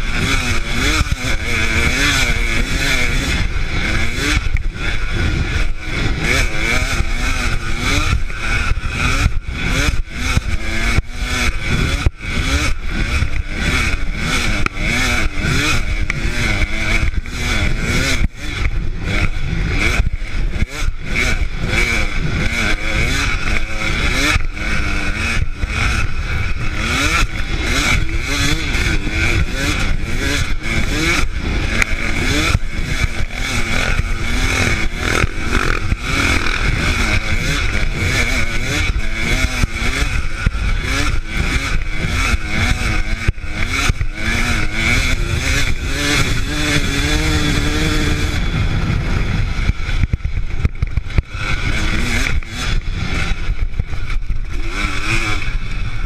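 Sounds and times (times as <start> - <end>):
dirt bike engine revving: 0.0 - 56.0
wind rumble on microphone: 24.8 - 54.6.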